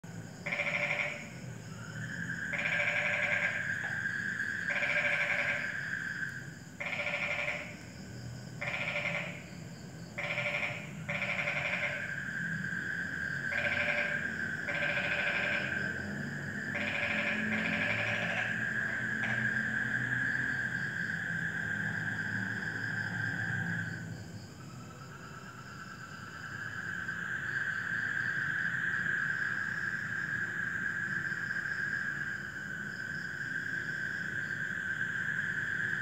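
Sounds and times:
frogs croaking: 0.0s - 36.0s.

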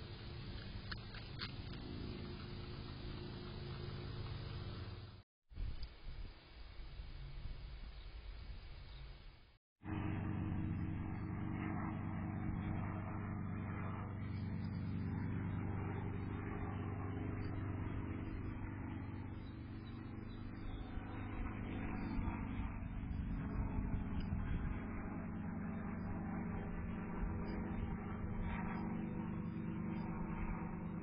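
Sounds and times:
sharp crackles: 0.0s - 6.0s
motor hum: 0.0s - 31.0s.

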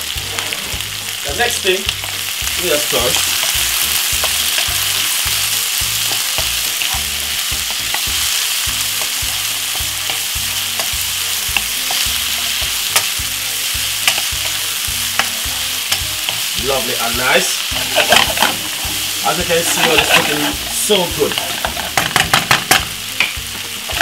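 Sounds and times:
vegetables sizzling in a frying pan: 0.0s - 24.0s
spoon tapping against pan: 14.0s - 16.4s, 21.6s - 24.0s
wooden spoon stirring: 17.6s - 22.5s.

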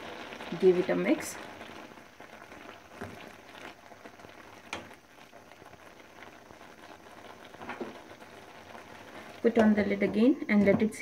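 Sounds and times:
thick food bubbling in pan: 0.0s - 11.0s
spatula stirring: 2.2s - 10.8s.

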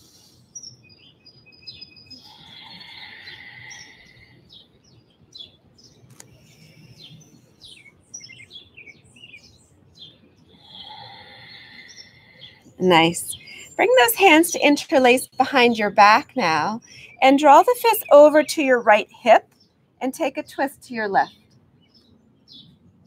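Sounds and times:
birds chirping and calling: 0.2s - 19.8s.

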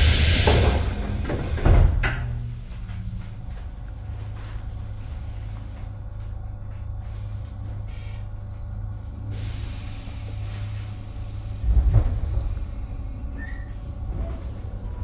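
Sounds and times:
air hiss: 0.0s - 2.0s, 9.3s - 12.4s
electric train hum: 0.0s - 15.0s.

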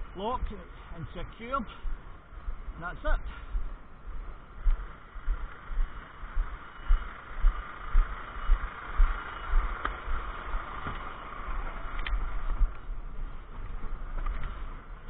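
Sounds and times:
footsteps on wet tarmac: 0.4s - 14.7s
lorry engine running: 3.7s - 15.0s.

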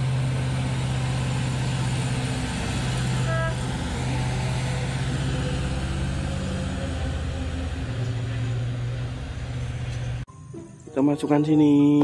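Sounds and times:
diesel truck engine running: 0.0s - 10.3s.

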